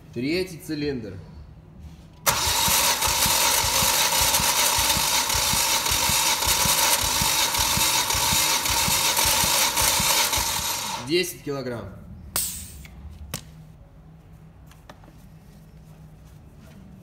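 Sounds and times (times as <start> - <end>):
engine cranking on starter motor: 2.2 - 11.1.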